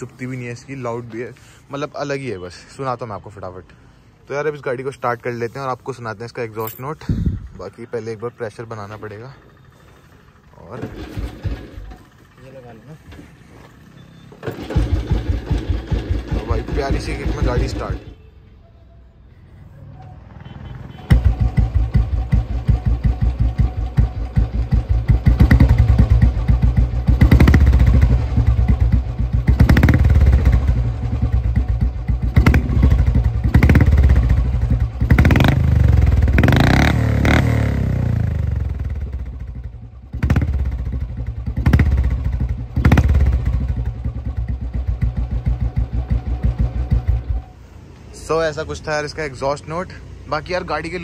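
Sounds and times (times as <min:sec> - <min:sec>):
motorcycle engine idling: 0:07.0 - 0:18.3, 0:20.9 - 0:47.7
motorcycle engine revving: 0:08.5 - 0:18.2, 0:20.2 - 0:47.6.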